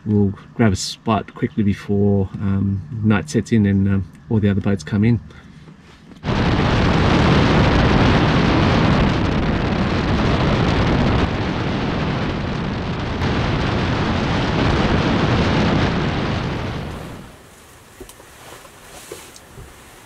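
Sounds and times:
wind rumble on microphone: 6.1 - 20.0.

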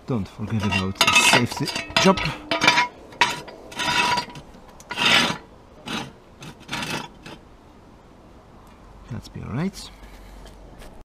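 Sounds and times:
metal scraping on paving: 0.1 - 7.5.

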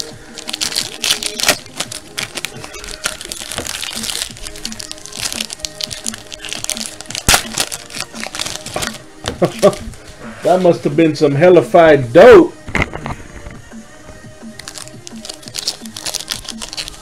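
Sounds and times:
foil wrapper crinkling and tearing: 0.0 - 9.8, 14.6 - 17.0
background music: 0.0 - 17.0
sharp crack: 5.2 - 8.8.

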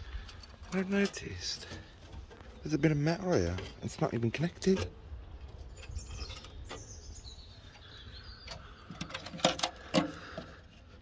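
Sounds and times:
bird calling: 5.8 - 10.6
sharp clicks and knocks: 8.4 - 10.6.

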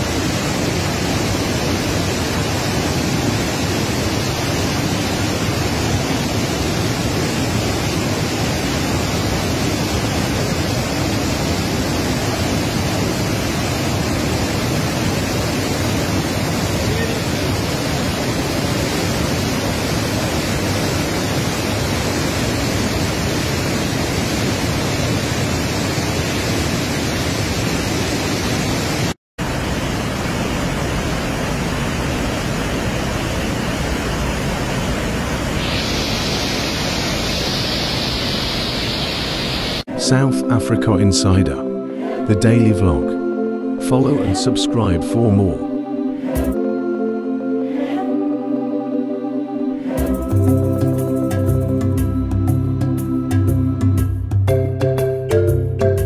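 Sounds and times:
waterfall rushing: 0.0 - 40.1.

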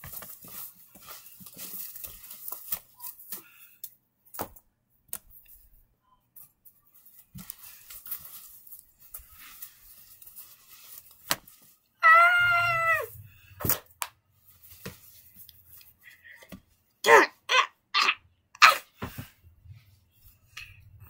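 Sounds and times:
plush toys rustling on carpet: 0.0 - 3.7, 6.4 - 16.8
child's high-pitched squeal: 12.0 - 13.1.

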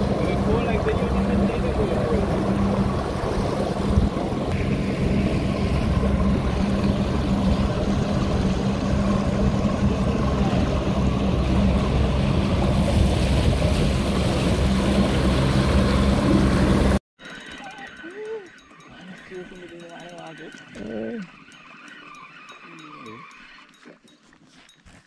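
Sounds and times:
water rushing: 0.0 - 17.0
outboard motor running: 0.0 - 24.1
wind: 0.0 - 25.0.

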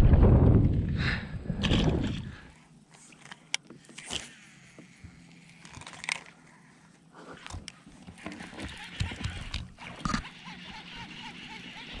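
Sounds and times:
wind rumble on microphone: 0.0 - 2.5
fishing line whirring out: 8.1 - 12.0.

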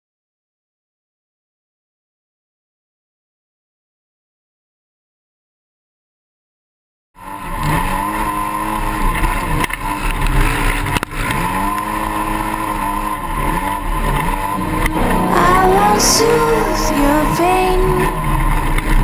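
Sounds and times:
music: 14.6 - 18.4.

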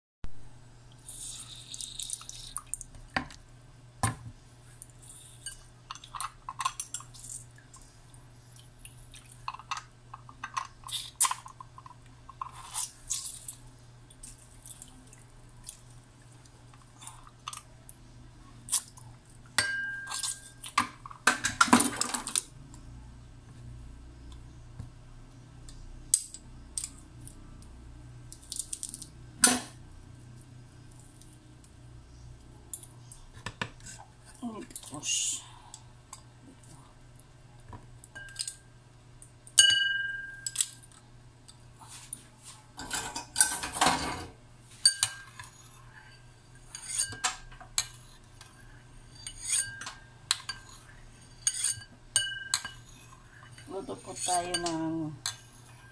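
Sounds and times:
juice dripping into bowl: 0.9 - 3.2.

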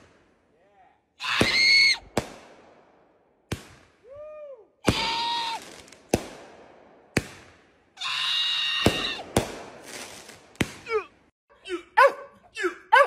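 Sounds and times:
firework bangs: 1.4 - 4.2, 4.8 - 8.0, 8.8 - 11.0.

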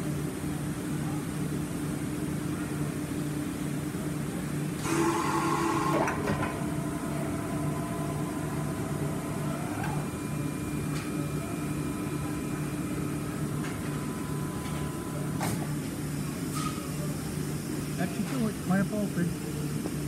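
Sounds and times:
machine humming with pulsing drone: 4.8 - 16.4.

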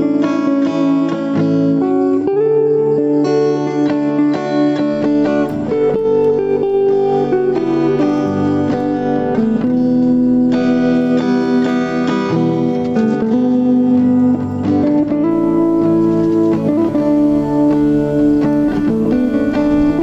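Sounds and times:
plucked string instrument playing: 0.0 - 20.0.

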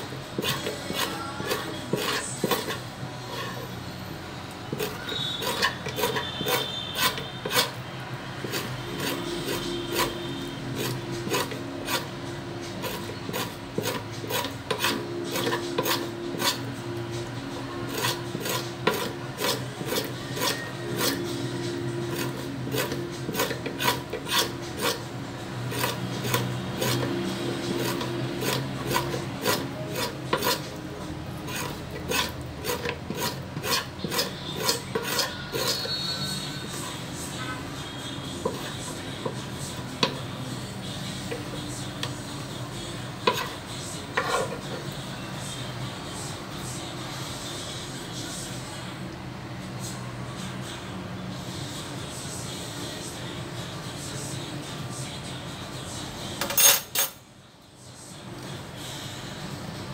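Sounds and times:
scraper rasping on wooden board: 0.4 - 3.6, 4.7 - 7.8, 8.4 - 12.1, 12.7 - 16.7, 17.9 - 25.0, 25.7 - 30.8, 31.5 - 36.1, 44.2 - 44.6.

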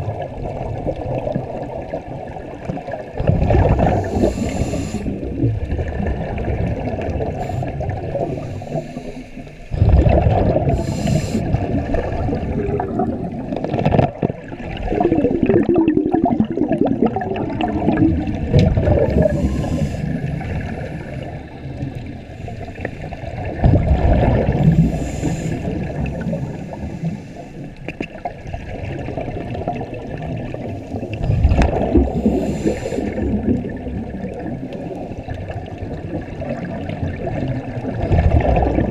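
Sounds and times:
exhaled bubbles surging: 0.0 - 27.2, 28.0 - 38.9
diver breathing underwater: 3.3 - 5.6, 7.0 - 13.3, 14.8 - 27.8, 31.2 - 33.8
regulator hiss: 3.9 - 5.1, 10.8 - 11.5.

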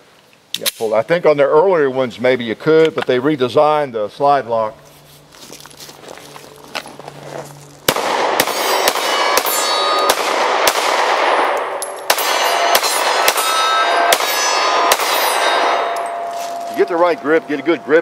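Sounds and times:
pistol shots: 7.9 - 16.6
steel targets ringing: 8.4 - 10.4, 11.2 - 18.0.

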